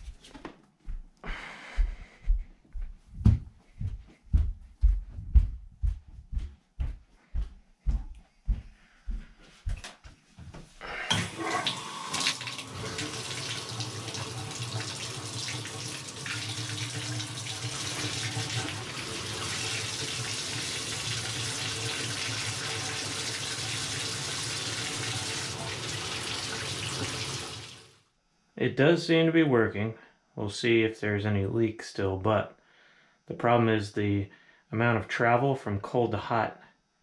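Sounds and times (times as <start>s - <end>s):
water running into bathtub: 11.1s - 28.0s.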